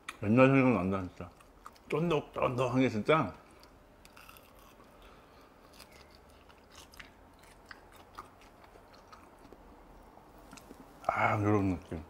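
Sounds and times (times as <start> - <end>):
wet chewing clicks: 1.1 - 2.1, 3.4 - 10.9.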